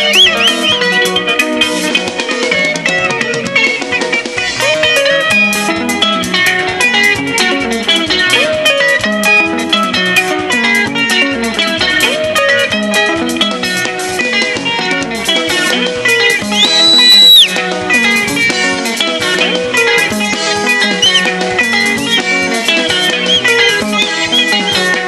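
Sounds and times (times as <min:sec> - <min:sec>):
band playing guitars bass and drums: 0:00.0 - 0:25.0
shrill high tone: 0:16.4 - 0:17.5, 0:22.9 - 0:25.0.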